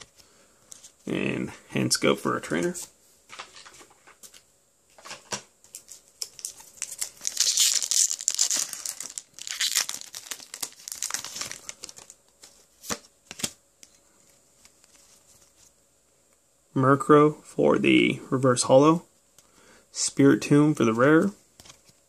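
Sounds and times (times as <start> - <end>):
foil wrapper crinkling: 5.0 - 13.5
foil wrapper tearing: 5.7 - 12.2.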